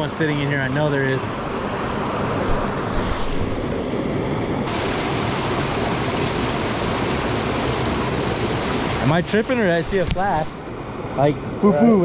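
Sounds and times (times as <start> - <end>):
water pouring over boulders: 4.7 - 10.5.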